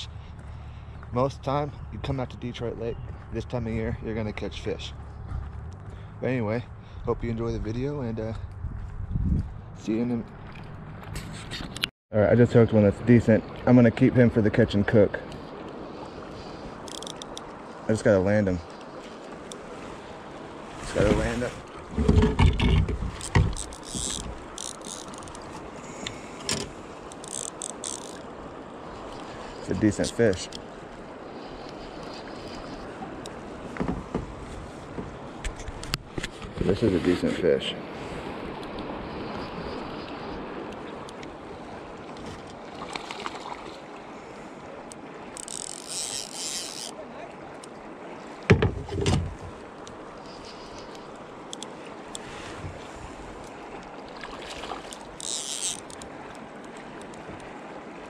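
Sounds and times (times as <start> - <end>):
wind on microphone: 7.1 - 11.8
water washing against boat: 15.5 - 58.0
fishing reel drag ratcheting: 16.8 - 17.4, 23.2 - 25.4, 26.5 - 28.2, 45.3 - 47.0, 54.9 - 56.1
loud knocks: 48.5 - 49.4.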